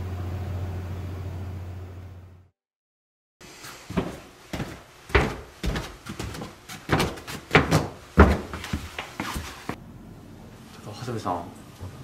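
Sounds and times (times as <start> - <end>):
footsteps on stairs echoing: 3.6 - 9.8.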